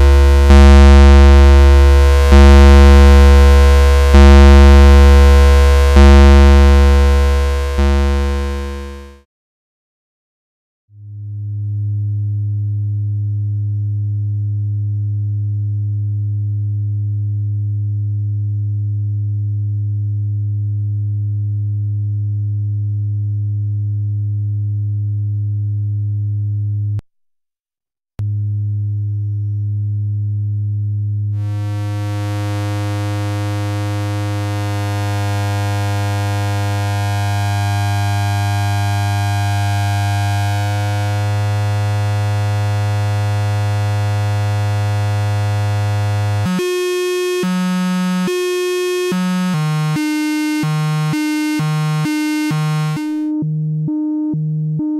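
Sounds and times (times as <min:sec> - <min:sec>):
bright buzzy synth tone: 0:00.0 - 0:09.2, 0:31.4 - 0:54.9
low sine tone: 0:00.0 - 0:09.3, 0:10.9 - 0:27.0, 0:28.2 - 0:54.9.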